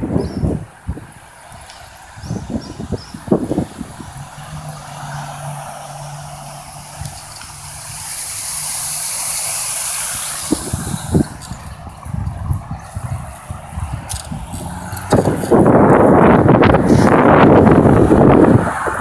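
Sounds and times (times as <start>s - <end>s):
car tyre noise passing: 0.0s - 19.0s.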